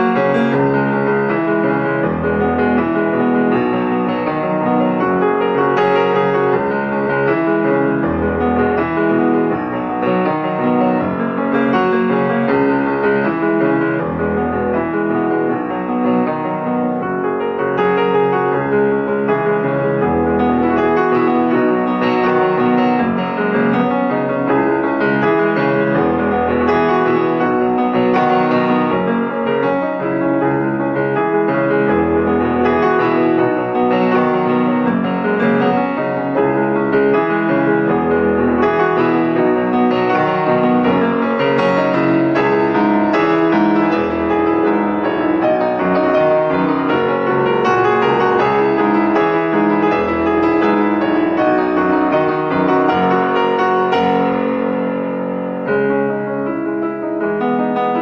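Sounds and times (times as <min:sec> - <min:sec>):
instrumental piano music: 0:00.0 - 0:58.0.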